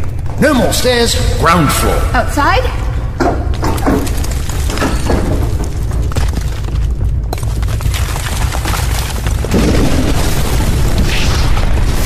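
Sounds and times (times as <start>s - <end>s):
debris crackling and clattering: 3.2s - 12.0s.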